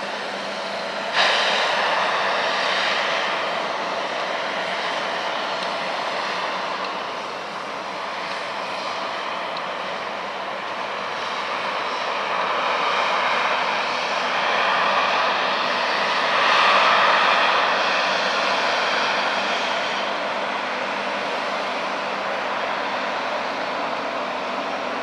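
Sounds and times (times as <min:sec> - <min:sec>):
jet engines rushing and whining: 0:00.0 - 0:25.0.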